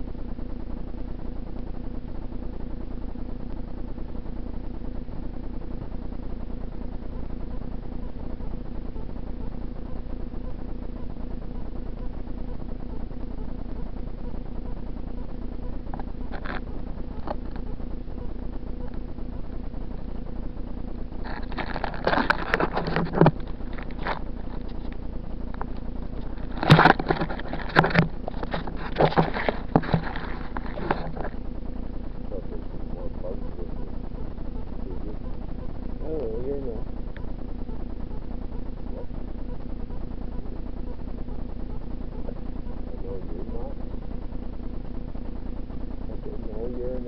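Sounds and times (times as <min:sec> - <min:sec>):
steady low hum: 0:00.0 - 0:47.0
camera clattering and scraping: 0:21.3 - 0:24.9, 0:25.6 - 0:31.4
camera housing rubbing in grass: 0:26.2 - 0:31.4.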